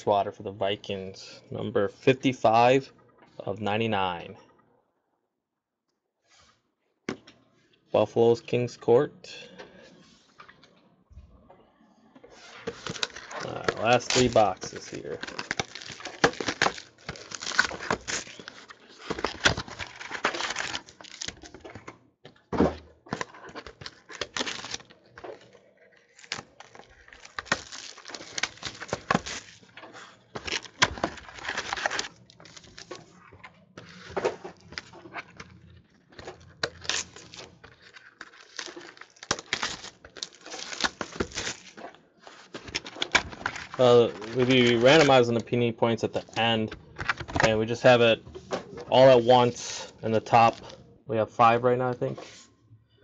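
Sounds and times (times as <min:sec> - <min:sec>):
plastic wrap crackling: 0:12.8 - 0:21.8, 0:23.2 - 0:25.5, 0:26.1 - 0:33.2, 0:36.1 - 0:45.3.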